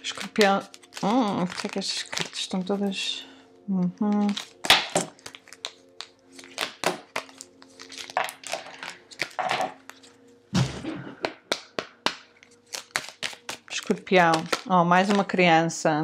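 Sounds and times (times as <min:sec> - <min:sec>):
cards clicking and snapping: 0:04.0 - 0:10.1, 0:11.2 - 0:15.3.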